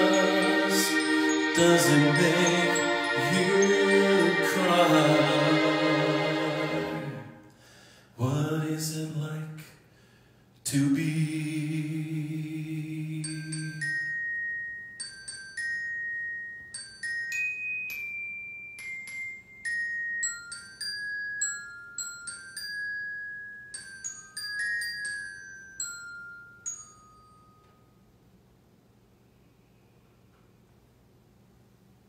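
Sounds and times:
person singing: 0.0 - 7.4
slow melody of ringing notes: 0.0 - 7.5, 12.1 - 28.4.

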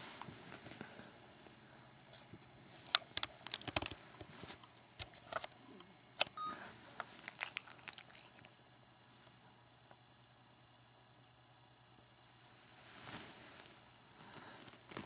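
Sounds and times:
faint beep: 6.4 - 6.6
dog mouth clicking and smacking: 7.2 - 8.5.

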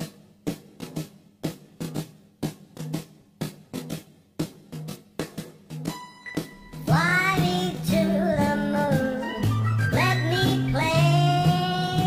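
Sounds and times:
song with sparse beat: 0.0 - 12.0
person singing: 6.8 - 12.0.

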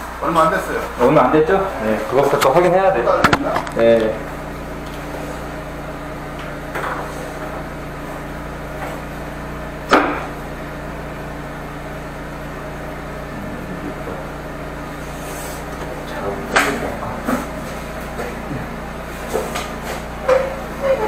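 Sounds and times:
gasoline engine running: 0.0 - 21.0
sharp knock: 9.9 - 10.3.

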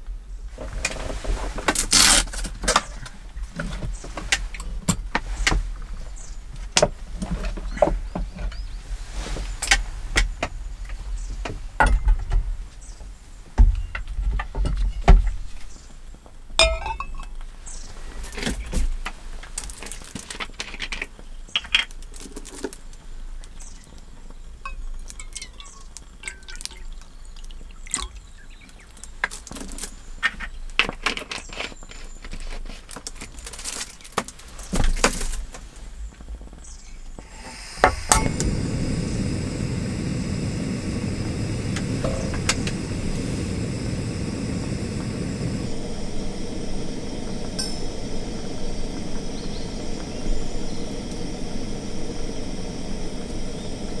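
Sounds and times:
metal cup and spoon clinking: 16.6 - 17.3
gas stove burner hissing: 37.1 - 54.0
gas stove lighting click: 37.5 - 54.0.

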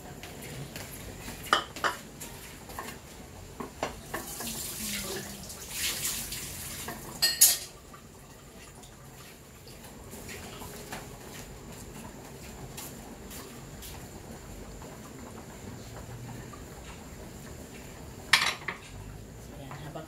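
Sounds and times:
metal pots and utensils clinking: 6.9 - 7.8, 18.3 - 19.0.

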